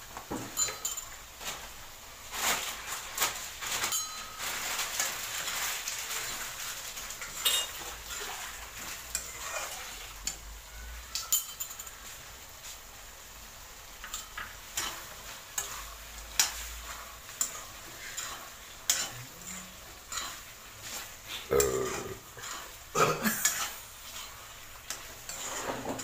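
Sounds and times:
gravy sizzling: 0:00.0 - 0:26.0
metal spoon clinking in a pan: 0:00.5 - 0:01.2, 0:03.8 - 0:04.4, 0:07.2 - 0:08.2, 0:09.1 - 0:12.1, 0:14.0 - 0:20.4.

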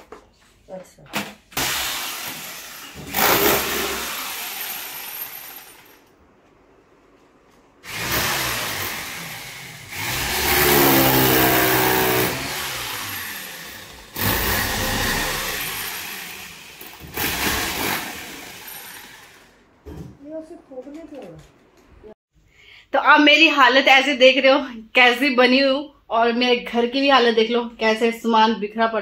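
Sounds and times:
power tool motor running: 0:01.6 - 0:05.7, 0:07.8 - 0:19.5.

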